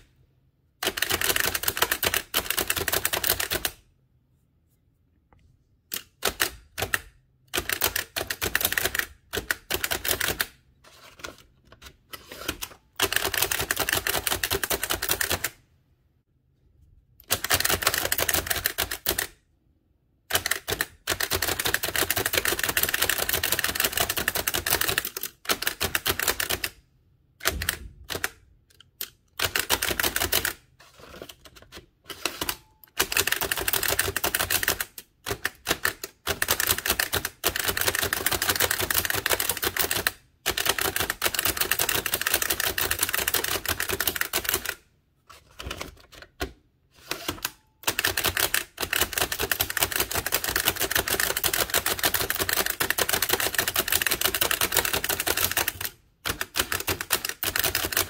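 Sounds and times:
typewriter keystrokes clattering: 12.5 - 15.5, 17.2 - 19.3, 20.3 - 26.7, 27.4 - 28.4, 32.1 - 44.8, 47.1 - 58.0.

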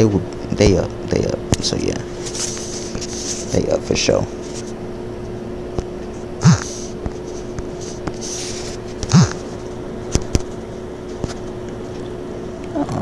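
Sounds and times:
steady low hum: 0.0 - 13.0
breathy voice sound: 6.4 - 7.0, 9.0 - 9.5.

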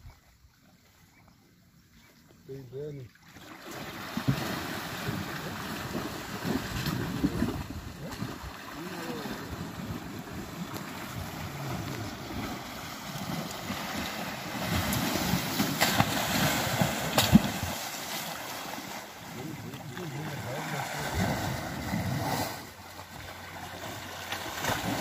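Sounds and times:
elephants splashing in water: 3.1 - 25.0.

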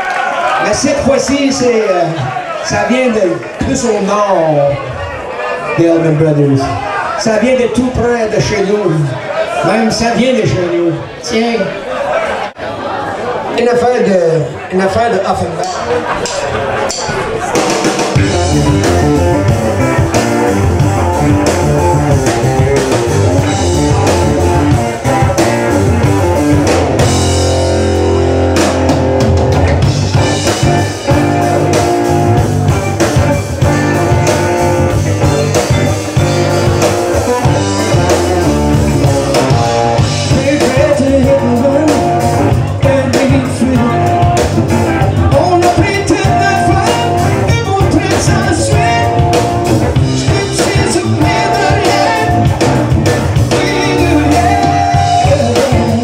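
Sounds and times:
drum kit: 15.6 - 56.0
electric guitar: 15.6 - 56.0
electric bass: 15.7 - 56.0.

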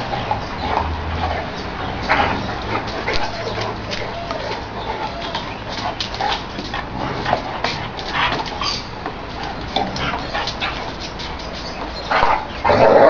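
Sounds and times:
dogs scuffling and snuffling: 0.0 - 13.0
dog whining: 3.0 - 5.7.

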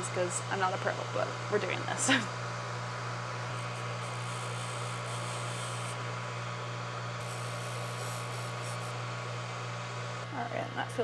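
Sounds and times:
bench polisher motor hum: 0.0 - 10.4
faint high hiss of grinding: 3.2 - 10.2.

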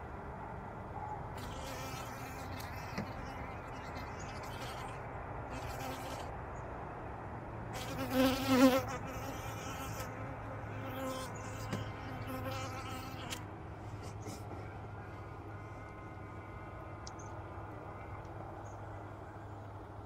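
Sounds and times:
honeybees buzzing: 7.8 - 13.4.

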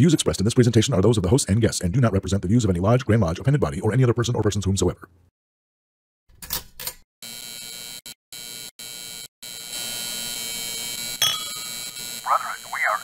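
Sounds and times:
neon sign electrical buzz: 7.2 - 12.3.

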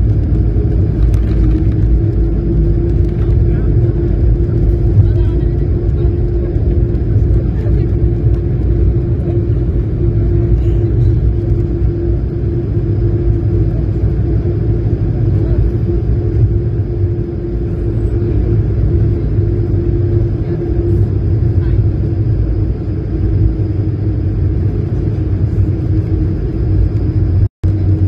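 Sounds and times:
airplane cabin engine rumble: 0.0 - 28.0
constant hum: 0.0 - 28.0.

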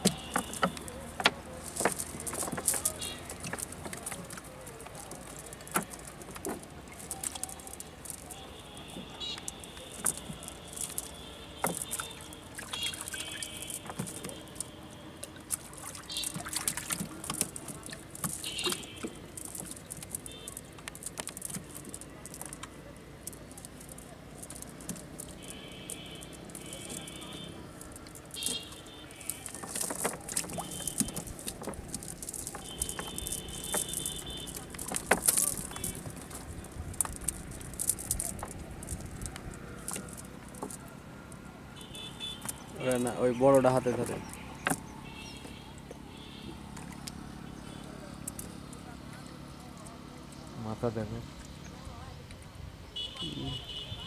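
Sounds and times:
net rustling: 0.0 - 14.8, 23.3 - 40.9
fish flapping on wooden planks: 0.0 - 41.1, 41.8 - 45.6
water trickling and splashing: 0.0 - 54.0.

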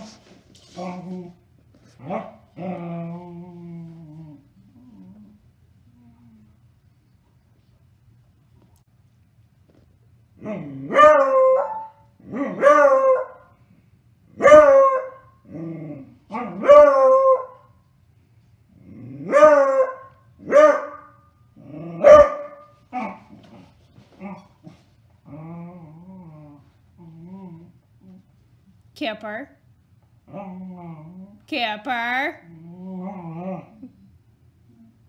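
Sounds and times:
dog barking: 14.4 - 15.2, 19.3 - 21.1, 22.0 - 23.2.

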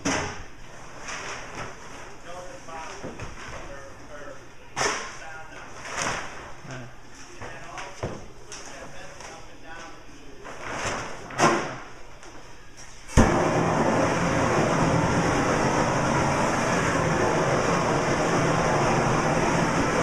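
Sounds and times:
gas torch hissing: 13.2 - 20.0.

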